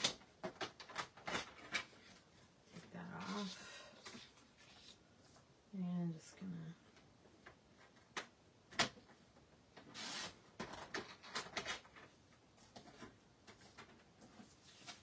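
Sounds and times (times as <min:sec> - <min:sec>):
paper rustling: 0:09.9 - 0:15.0.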